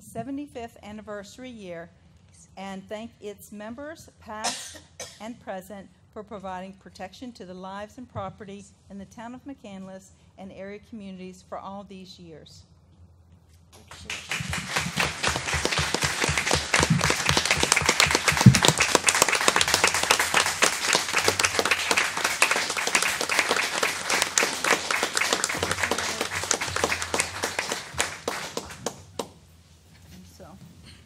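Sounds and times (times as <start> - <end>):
audience applauding: 13.8 - 29.4.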